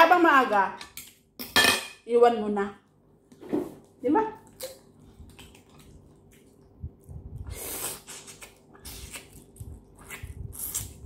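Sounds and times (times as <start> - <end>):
mouth smacking while eating: 4.5 - 11.0.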